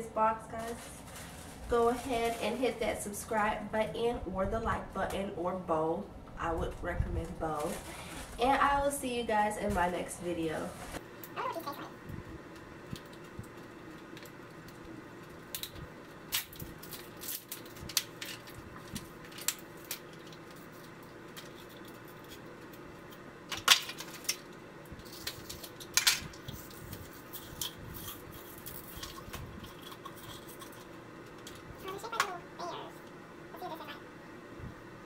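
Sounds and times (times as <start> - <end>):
small objects clicking and rattling: 12.9 - 32.3.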